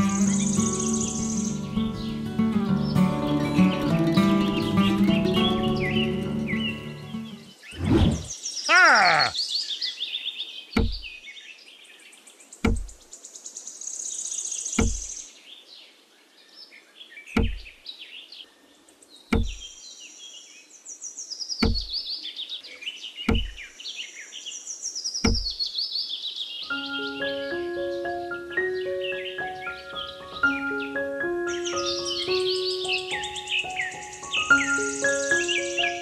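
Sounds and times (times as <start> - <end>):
birds chirping and trilling: 0.0 - 36.0
dull low knock: 10.8 - 11.1, 12.6 - 12.9, 14.8 - 15.1, 17.4 - 17.7, 19.3 - 19.6, 21.6 - 21.9, 23.3 - 23.6, 25.3 - 25.5.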